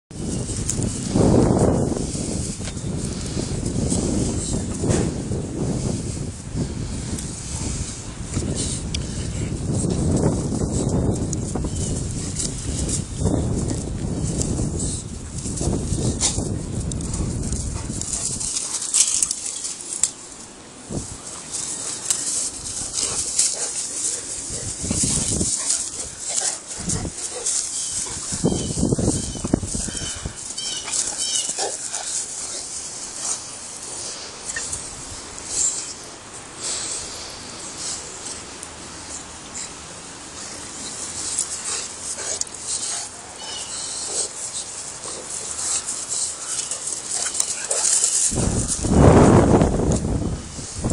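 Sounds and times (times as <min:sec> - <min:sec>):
steady high hiss: 0:00.2 - 0:50.9
dogs play-wrestling: 0:12.1 - 0:20.2, 0:21.1 - 0:35.9, 0:39.0 - 0:48.8.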